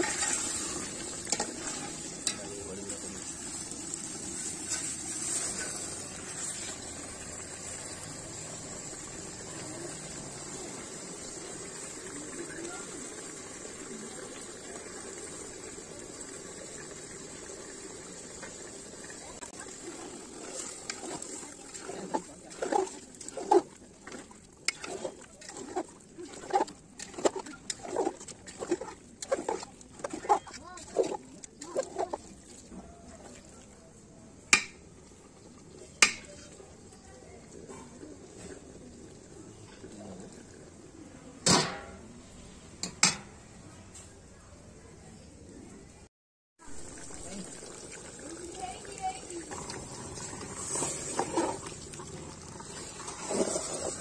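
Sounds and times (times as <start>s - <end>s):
spoon scraping a pot: 0.0s - 2.5s, 21.8s - 32.2s
pot boiling and bubbling: 0.0s - 44.3s, 46.6s - 54.0s.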